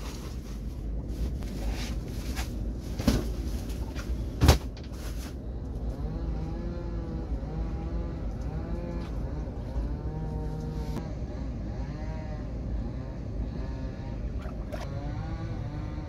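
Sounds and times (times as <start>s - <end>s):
wind: 0.0s - 16.0s
droning hum wavering in pitch: 5.4s - 16.0s.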